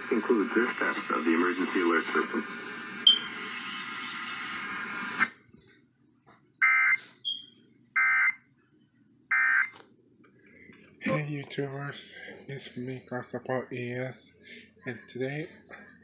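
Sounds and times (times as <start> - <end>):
radio broadcast audio: 0.0 - 5.3, 10.5 - 16.0.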